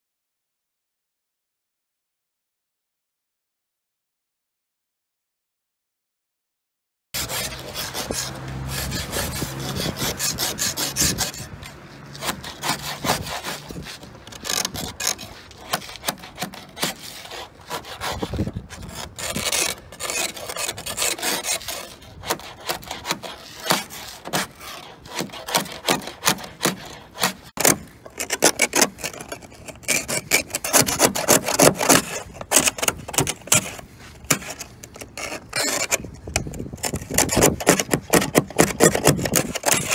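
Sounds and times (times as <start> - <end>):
ice scraper rasping on windshield: 7.2 - 39.9.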